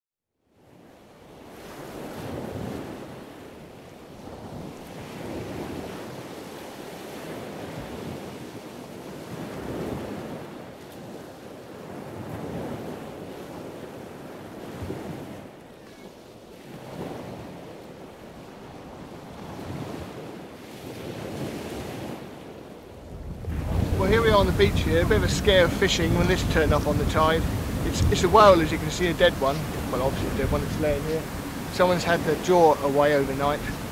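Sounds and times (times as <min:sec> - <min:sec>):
surf: 0:01.3 - 0:33.9
wind buffeting microphone: 0:16.6 - 0:33.9.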